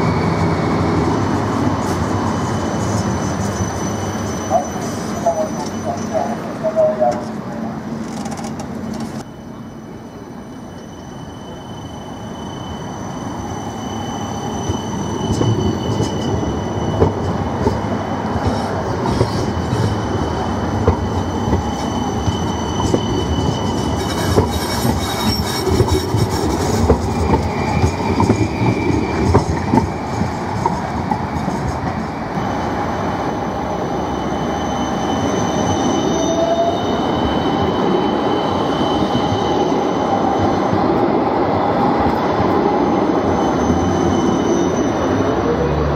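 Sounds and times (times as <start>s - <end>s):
tram rumble: 0.0s - 45.9s
high-pitched wheel squeal: 2.2s - 7.1s, 9.2s - 30.2s, 33.7s - 40.8s, 42.8s - 45.9s.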